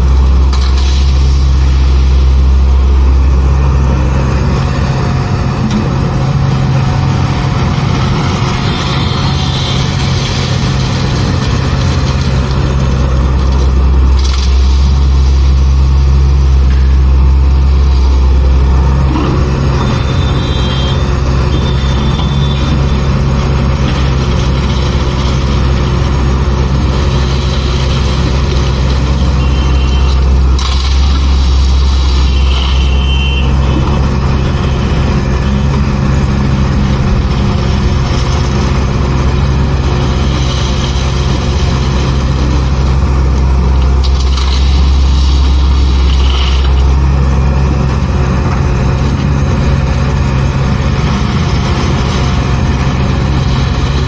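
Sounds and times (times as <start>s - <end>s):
excavator diesel engine droning: 0.0s - 54.0s
high whine: 0.0s - 54.0s.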